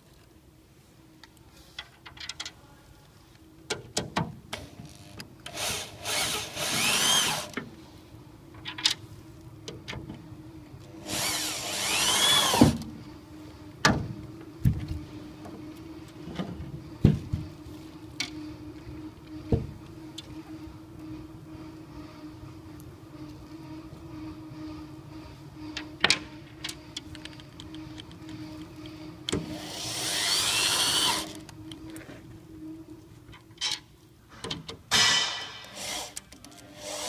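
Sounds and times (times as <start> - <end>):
power drill whining: 5.5 - 7.6, 11.0 - 12.8, 28.3 - 31.5, 35.7 - 37.0.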